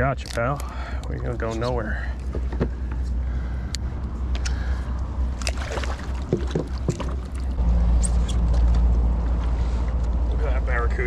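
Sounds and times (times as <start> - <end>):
steady low rumble: 0.0 - 11.0
water splashing by fish thrashing: 4.6 - 7.6.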